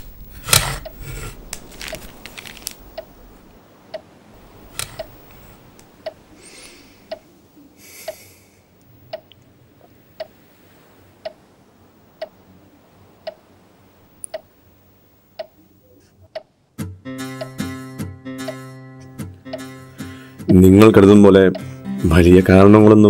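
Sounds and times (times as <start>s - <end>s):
short rustle: 0.0s - 3.6s
clock ticking: 4.7s - 6.3s, 7.0s - 7.3s, 8.0s - 8.2s, 8.8s - 9.4s, 15.3s - 15.6s, 16.3s - 16.5s, 17.3s - 17.8s, 19.3s - 19.8s, 20.4s - 22.7s.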